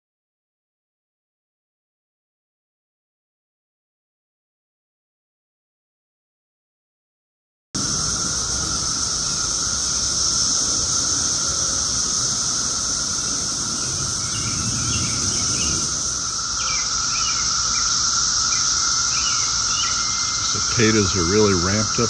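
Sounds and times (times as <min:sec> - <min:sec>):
birds chirping faintly: 0:07.8 - 0:22.0
cicadas droning: 0:07.8 - 0:22.0.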